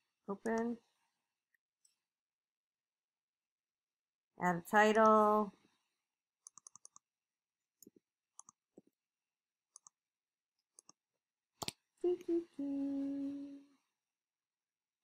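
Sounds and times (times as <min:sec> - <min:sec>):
computer mouse clicks: 0:06.4 - 0:07.1, 0:07.8 - 0:08.6, 0:09.7 - 0:10.0
woman humming: 0:12.0 - 0:13.7.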